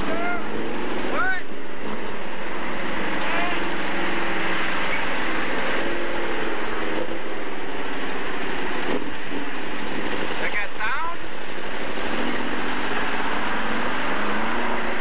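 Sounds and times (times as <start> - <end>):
constant rushing noise: 0.0 - 15.0
vehicle engine running: 0.0 - 15.0.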